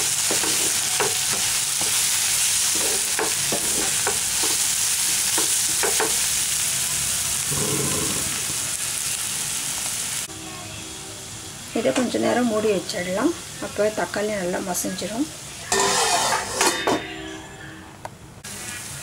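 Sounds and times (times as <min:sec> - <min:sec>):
food sizzling in oil: 0:00.0 - 0:16.7, 0:18.4 - 0:19.0
wooden spatula scraping a pan: 0:15.8 - 0:16.8.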